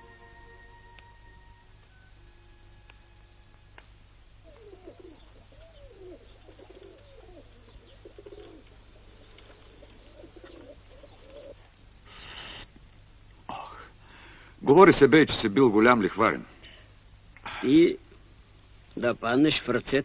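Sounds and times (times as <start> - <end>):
low steady hum: 0.0 - 20.0
pigeons cooing: 4.4 - 12.4.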